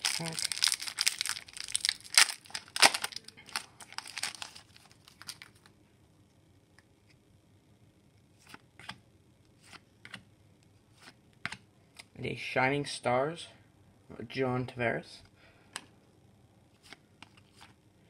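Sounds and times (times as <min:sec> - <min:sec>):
foil wrapper tearing and crinkling: 0:00.0 - 0:05.7.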